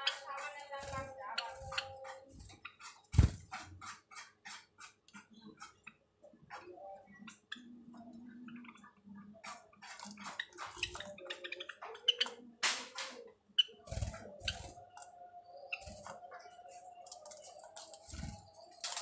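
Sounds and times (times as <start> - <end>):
wingbeats and landings: 0.0 - 5.8, 12.7 - 15.1, 17.1 - 19.0
sparrows chirping and clicking: 0.0 - 19.0.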